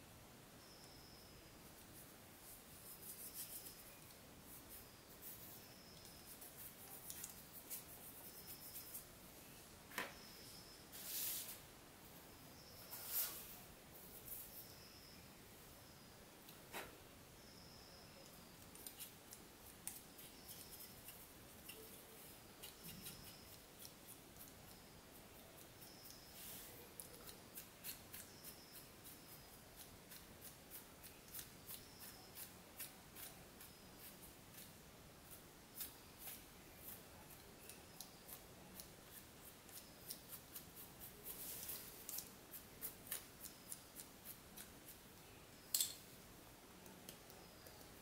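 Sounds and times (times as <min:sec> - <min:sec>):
paintbrush strokes on plastic: 0:01.8 - 0:09.5, 0:10.4 - 0:11.7, 0:12.6 - 0:15.1, 0:18.5 - 0:45.1.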